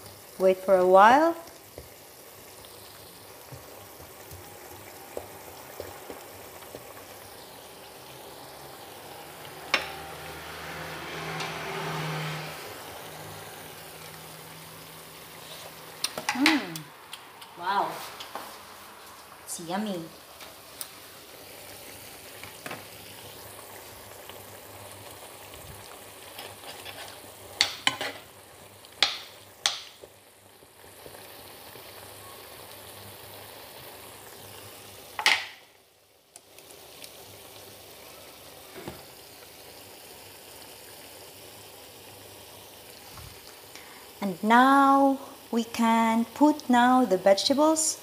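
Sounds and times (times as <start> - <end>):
food sizzling in a frying pan: 0.0 - 48.0
utensil scraping a pan: 26.3 - 28.3.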